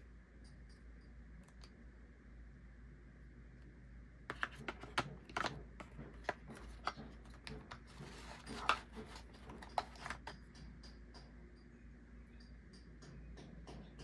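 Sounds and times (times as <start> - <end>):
plastic parts clicking and tapping: 4.3 - 11.3.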